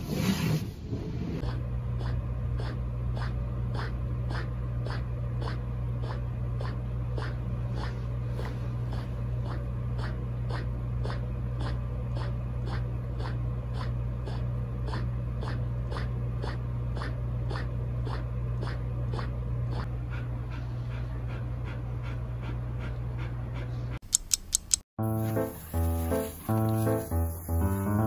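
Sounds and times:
low hum: 0.8s - 24.0s
puppy panting: 1.4s - 24.0s
sharp clicks: 24.0s - 24.8s.

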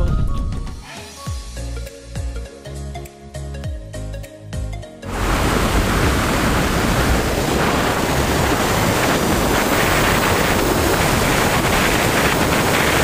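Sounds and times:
wind rushing on microphone: 5.1s - 13.0s.

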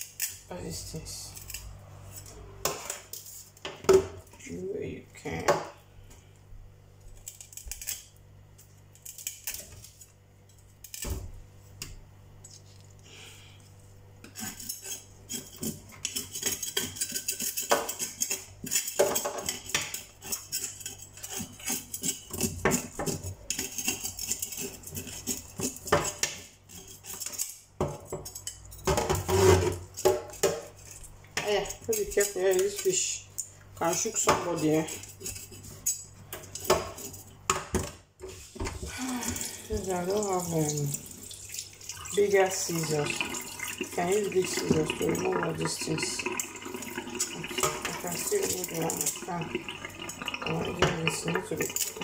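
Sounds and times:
knife scraping fish scales: 1.3s - 3.6s, 7.2s - 11.1s, 14.2s - 28.7s, 29.3s - 37.4s.

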